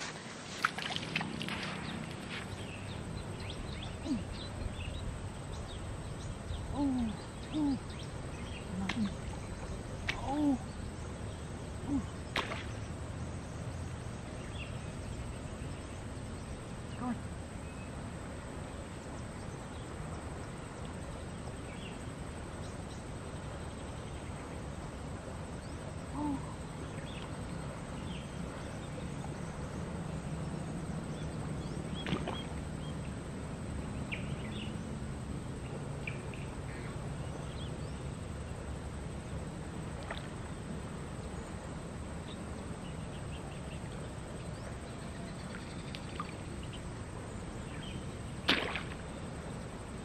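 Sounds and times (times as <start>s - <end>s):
fishing rod cast swish and splash: 0.0s - 2.7s, 12.3s - 12.9s, 48.4s - 49.0s
low riverside background: 0.0s - 50.0s
faint chirps: 0.7s - 12.8s, 25.6s - 29.1s.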